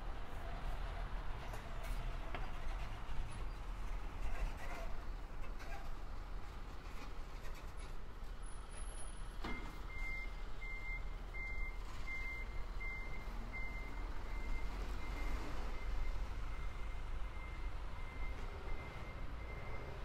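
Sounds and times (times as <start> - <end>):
reversing alarm beeping: 9.5 - 20.0.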